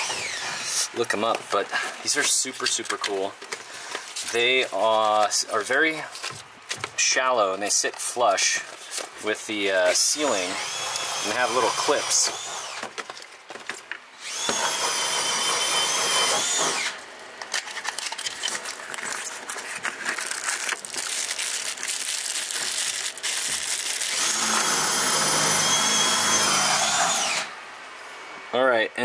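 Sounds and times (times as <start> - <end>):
power tool motor whining: 0.0 - 0.9, 9.9 - 12.9, 14.2 - 17.1, 22.6 - 27.6.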